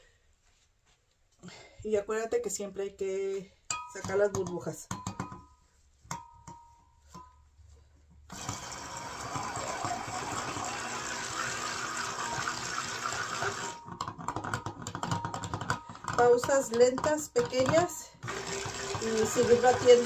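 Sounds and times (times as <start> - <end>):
stick blender whirring in liquid: 8.3 - 16.4, 17.5 - 20.0.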